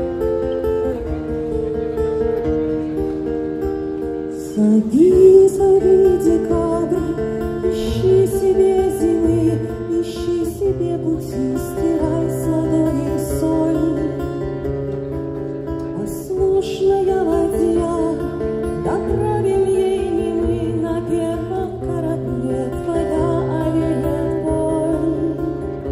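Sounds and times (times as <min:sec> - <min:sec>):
acoustic guitar: 0:00.0 - 0:25.9
woman singing: 0:04.3 - 0:14.3, 0:16.0 - 0:25.9.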